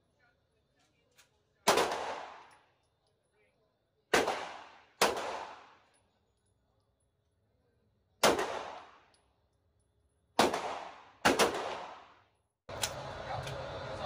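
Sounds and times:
steady background hum: 12.7s - 14.0s.

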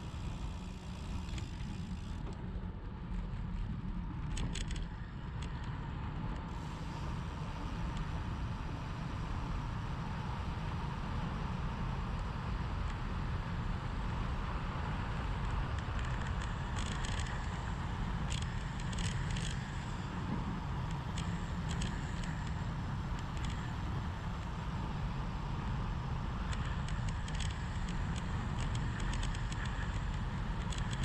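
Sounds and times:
small crackling clicks: 0.8s - 2.4s, 3.1s - 6.5s, 15.4s - 20.0s, 20.8s - 24.5s, 26.4s - 31.0s.

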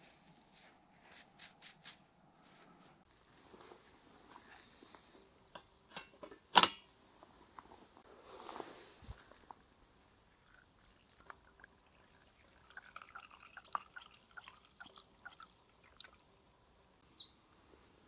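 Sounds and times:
fuel dripping and splashing: 10.8s - 16.4s.

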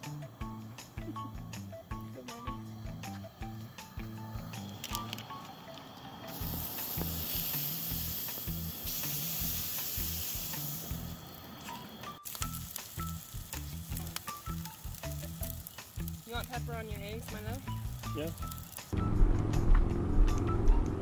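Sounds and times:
background music: 0.0s - 21.0s
butter sizzling on a griddle: 6.3s - 19.0s.

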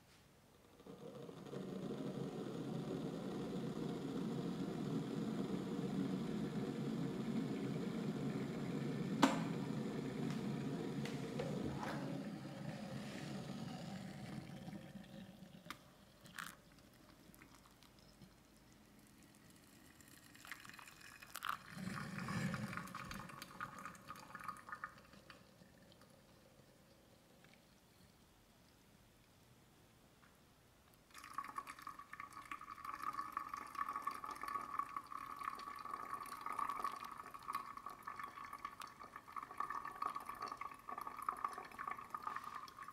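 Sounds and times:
water pouring from kettle: 0.8s - 26.8s, 31.1s - 42.9s.

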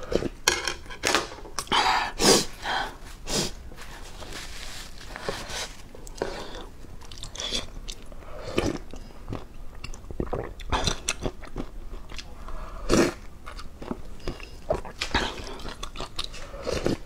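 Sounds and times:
woman chewing: 5.2s - 17.0s.

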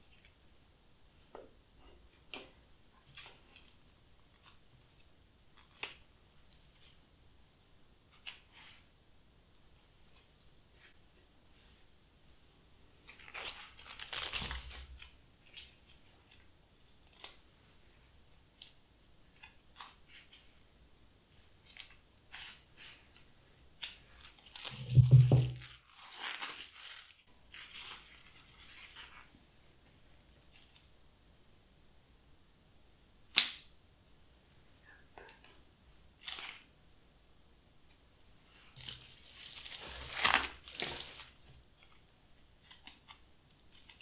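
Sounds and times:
rustling plant leaves: 24.2s - 29.3s, 38.5s - 41.6s
low thud: 24.8s - 25.6s.

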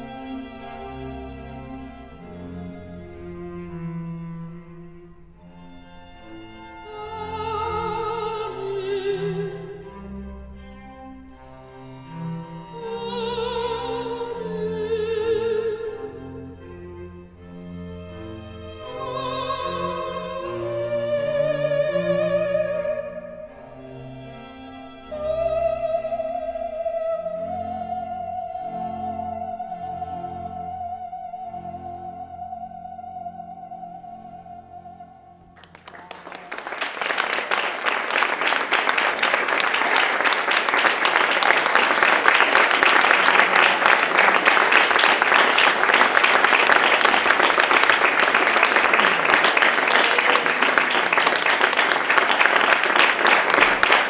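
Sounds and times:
operatic singing voice: 18.8s - 23.4s
audience applause: 35.6s - 54.0s.

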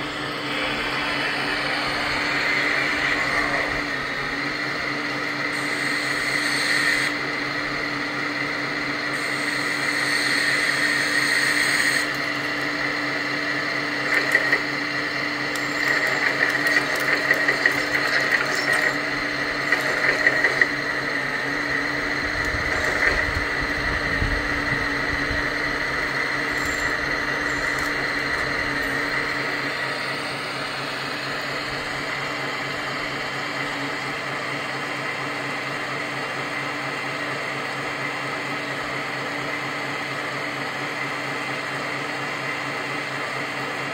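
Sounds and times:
hydraulic pump whine: 0.0s - 43.9s
sharp clicks from tracks: 14.0s - 14.8s, 15.5s - 21.3s, 22.3s - 23.8s, 26.5s - 29.2s.

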